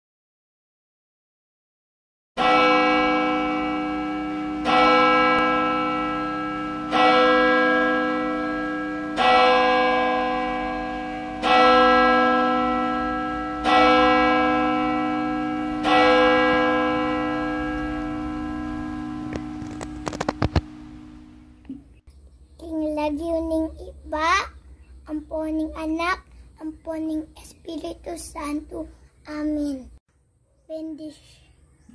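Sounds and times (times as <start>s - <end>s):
large bell tolling: 2.4s - 21.6s.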